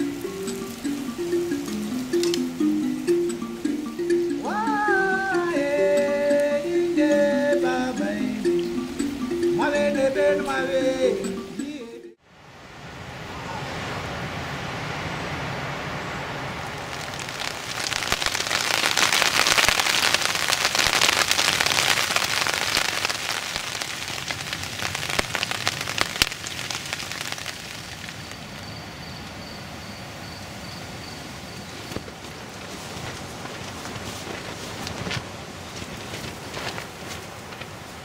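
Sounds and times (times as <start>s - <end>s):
rain pattering on a tent: 0.0s - 11.1s, 13.6s - 29.4s, 31.3s - 38.0s
faint high tone: 4.4s - 7.9s.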